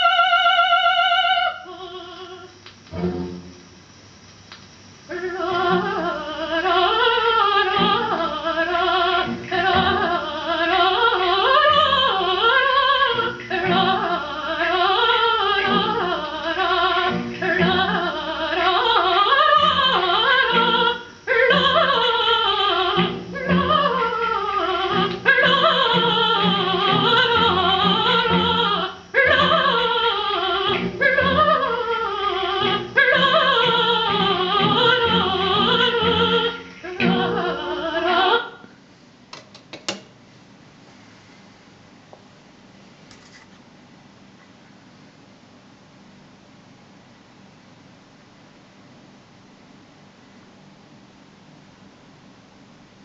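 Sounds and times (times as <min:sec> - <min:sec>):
classical singing with vibrato: 0:00.0 - 0:03.8, 0:05.1 - 0:38.8
instrumental accompaniment: 0:02.9 - 0:03.6.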